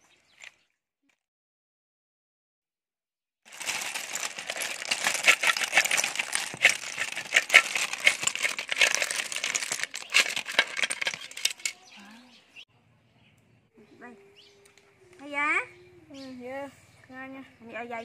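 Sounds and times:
snail shells clattering onto tray: 3.5s - 11.8s.

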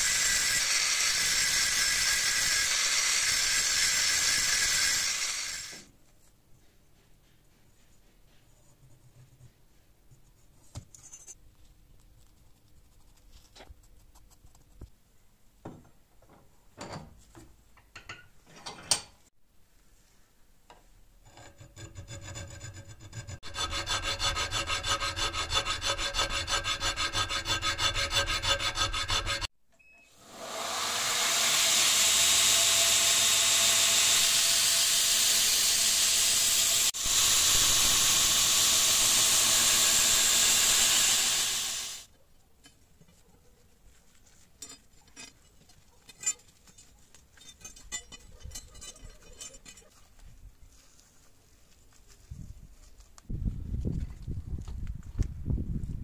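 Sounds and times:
belt grinder grinding metal: 0.0s - 5.9s, 21.5s - 29.5s, 30.2s - 42.1s
scribe clicking and scraping on steel: 10.7s - 11.4s, 20.7s - 29.5s
hand file rasping on metal: 21.2s - 29.5s.

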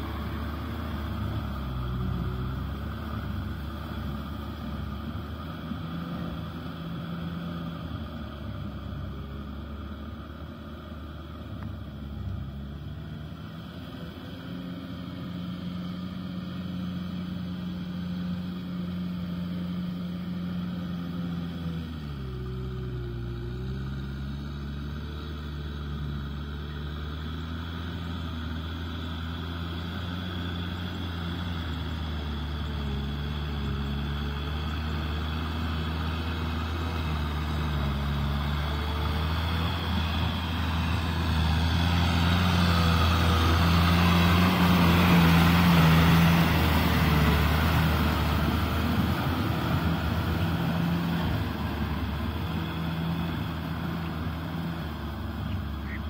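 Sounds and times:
tractor diesel engine: 0.0s - 56.0s
rotavator tilling mud: 18.1s - 56.0s.

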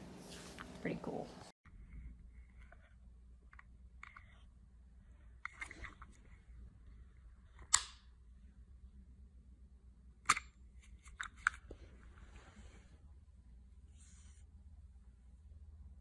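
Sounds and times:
plastic clicks and scrapes of brush: 2.4s - 4.5s, 5.4s - 6.3s, 10.3s - 11.8s.

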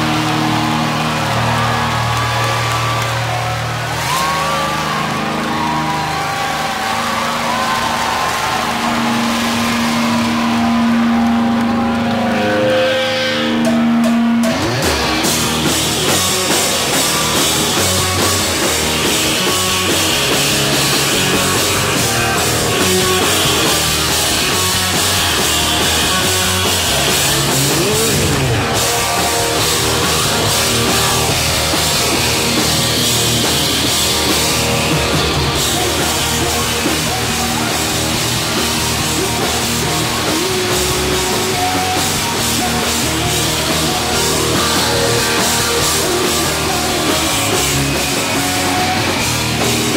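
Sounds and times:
bass guitar: 0.0s - 49.9s
distorted electric guitar: 0.0s - 49.9s
drum kit: 0.0s - 49.9s.

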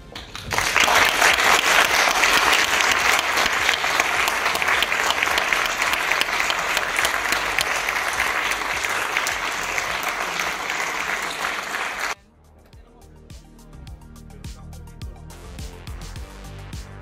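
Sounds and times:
audience applause: 0.0s - 12.2s.

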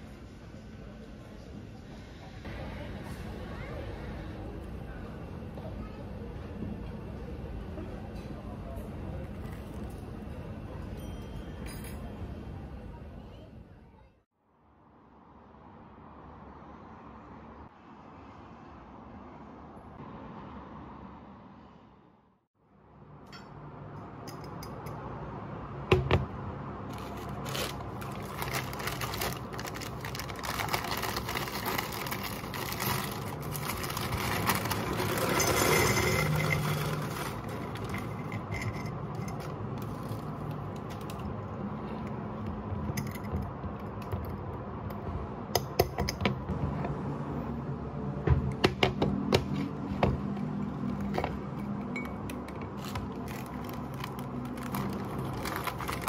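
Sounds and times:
glass jars clinking on counter: 35.1s - 37.1s, 37.9s - 39.5s.

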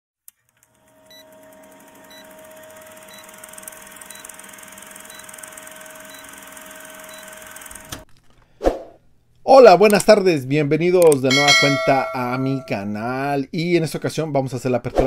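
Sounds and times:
film projector running: 0.3s - 8.0s.

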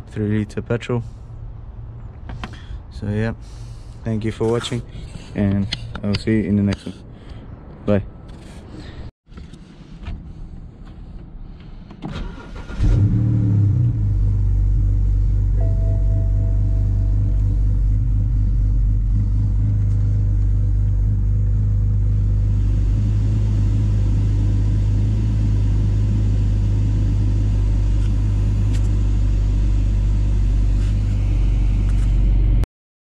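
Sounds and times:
car engine idling: 13.7s - 32.6s.

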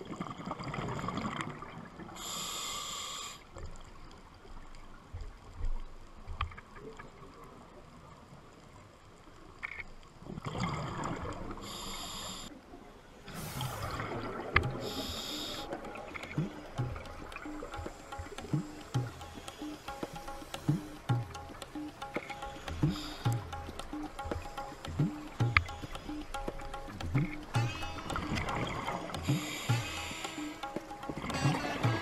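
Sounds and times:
air hissing through regulator: 13.3s - 14.0s, 14.8s - 15.8s, 29.2s - 31.0s
exhaled air bubbling: 13.3s - 31.4s.

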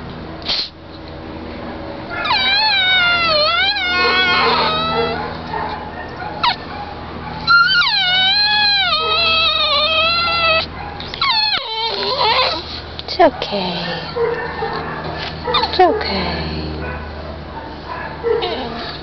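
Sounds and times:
steady low hum: 0.0s - 19.0s
dog whining: 2.1s - 16.2s, 17.9s - 19.0s.

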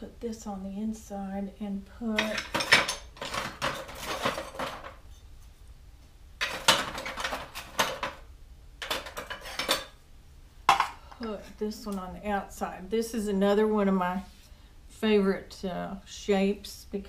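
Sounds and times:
pottery tools clattering: 2.1s - 5.5s, 6.4s - 10.0s, 10.7s - 12.0s.

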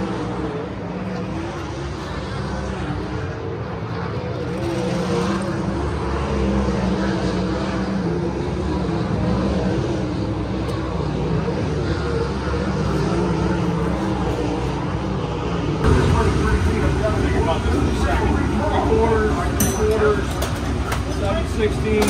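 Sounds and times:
race car engines roaring: 0.0s - 22.0s.

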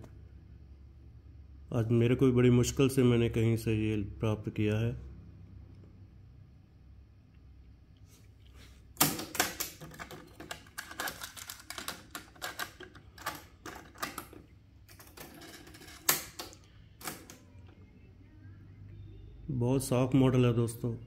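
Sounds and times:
plastic cassette clicks and rattles: 9.0s - 14.4s.

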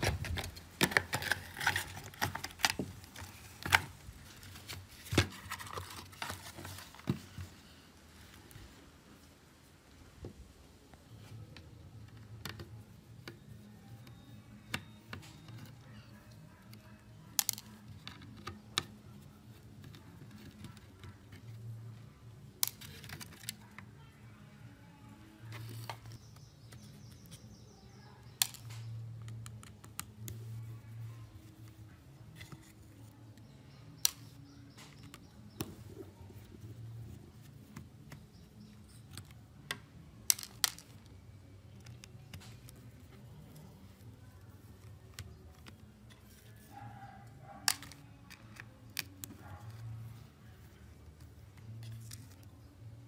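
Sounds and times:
plastic telephone parts clicking: 37.7s - 46.7s, 47.6s - 49.7s.

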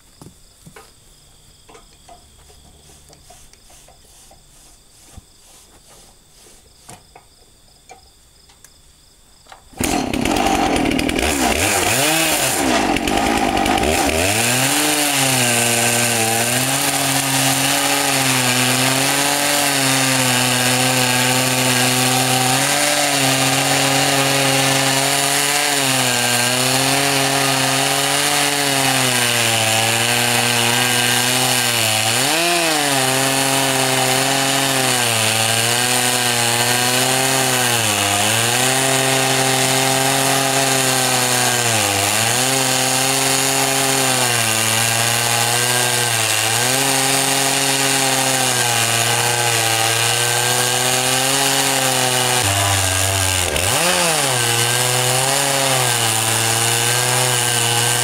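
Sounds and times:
chainsaw cutting log: 9.7s - 58.0s.

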